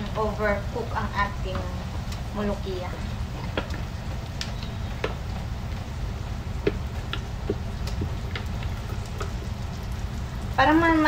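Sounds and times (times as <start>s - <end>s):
stock bubbling in a pot: 3.0s - 11.0s
sharp pops and ticks: 3.3s - 10.5s.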